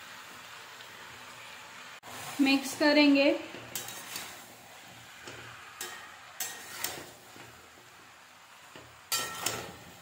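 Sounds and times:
faint frying sizzle: 0.0 - 10.0
spatula scraping a wok: 2.1 - 10.0.

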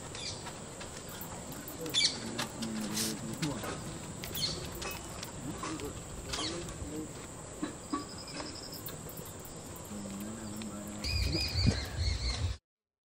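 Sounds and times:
bird trill: 1.2 - 2.2, 4.3 - 5.3, 7.8 - 12.6
short arched bird calls: 9.9 - 12.6.

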